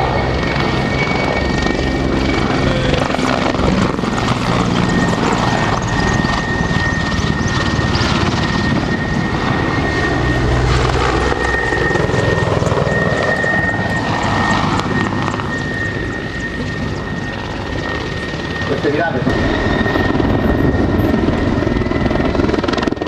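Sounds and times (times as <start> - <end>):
helicopter rotor chopping: 0.0 - 23.0
high turbine engine whine: 0.0 - 23.0.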